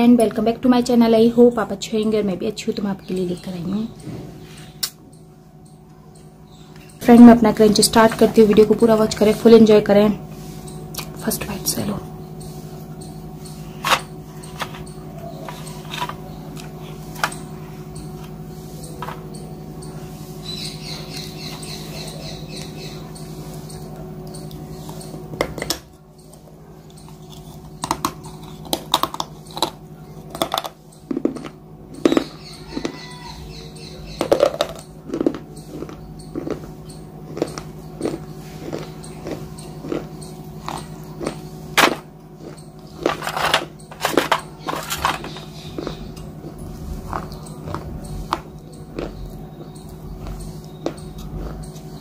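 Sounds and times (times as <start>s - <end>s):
steady low hum: 0.0s - 52.0s
crunching and chewing: 12.9s - 18.4s, 20.5s - 52.0s.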